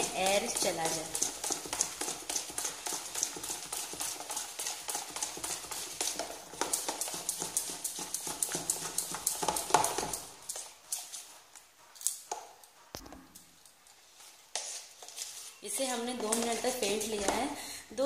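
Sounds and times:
spoon beating batter in bowl: 0.0 - 17.6.

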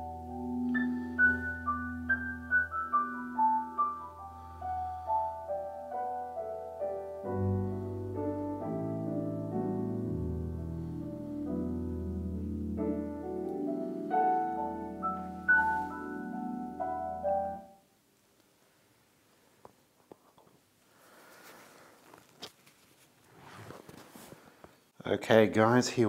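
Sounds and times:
piano-like keyboard melody: 0.0 - 17.8.

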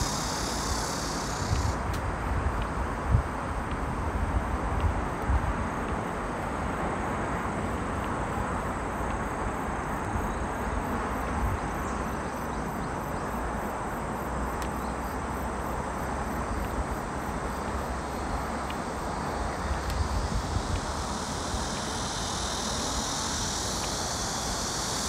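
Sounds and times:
faint insect chirring: 0.0 - 3.9, 6.8 - 25.0.

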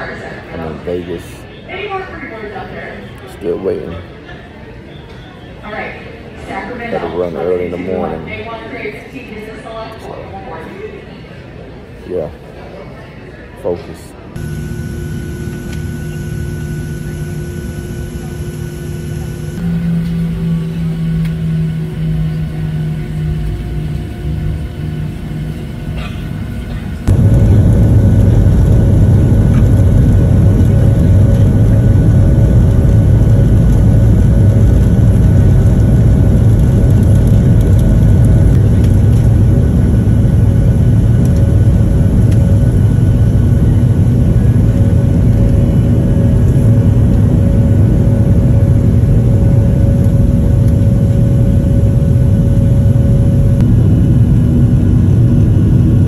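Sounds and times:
faint hum: 14.2 - 56.0
jet engines rumbling: 14.2 - 56.0.

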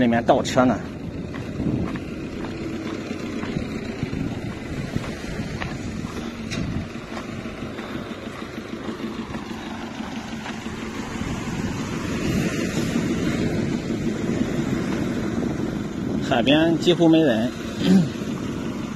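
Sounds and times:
faint tractor engine hum: 0.0 - 18.9
wind rumbling on microphone: 0.0 - 18.9
surf washing up beach: 10.4 - 18.9.

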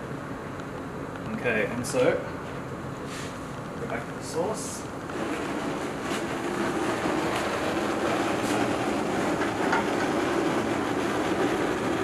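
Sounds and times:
gas burners roaring: 0.0 - 12.0
background machinery: 3.6 - 12.0.

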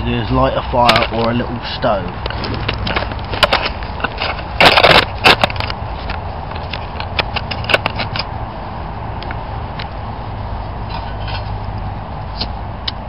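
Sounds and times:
dry wood cracking and snapping: 0.8 - 1.5, 2.1 - 8.4.

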